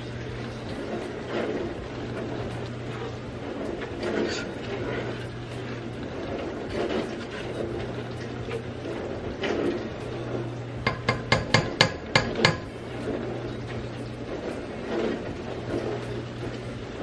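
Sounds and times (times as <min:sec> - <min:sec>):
steady low hum: 0:00.0 - 0:17.0
spoon scraping metal pot: 0:03.9 - 0:05.3.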